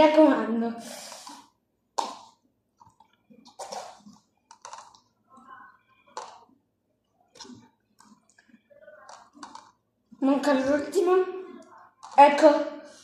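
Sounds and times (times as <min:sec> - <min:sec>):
plastic cups clicking: 0:01.1 - 0:05.1, 0:06.0 - 0:06.6, 0:07.3 - 0:09.8, 0:11.7 - 0:12.6.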